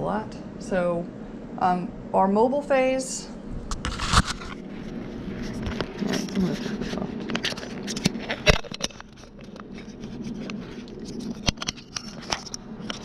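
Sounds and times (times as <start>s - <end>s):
low steady hum: 0.0s - 13.0s
camera handling noise: 3.7s - 4.6s, 5.4s - 13.0s.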